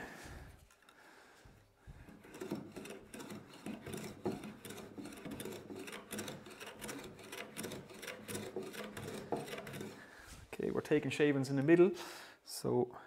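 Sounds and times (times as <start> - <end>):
hand plane rasping on wood: 1.9 - 10.2.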